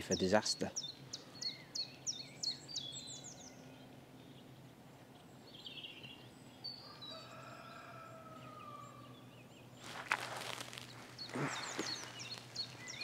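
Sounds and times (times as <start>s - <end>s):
wild birds singing: 0.0s - 13.0s.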